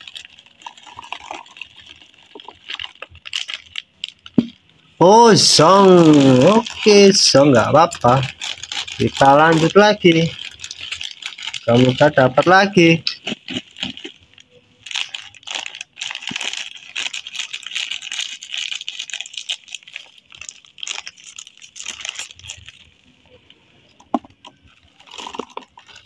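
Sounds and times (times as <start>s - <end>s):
plastic packaging crackling: 0.0s - 26.0s
scissors cutting plastic bag: 5.7s - 14.2s.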